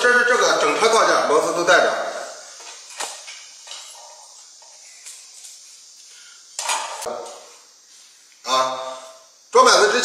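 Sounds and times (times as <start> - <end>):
metal brackets clinking and knocking: 2.6 - 4.8.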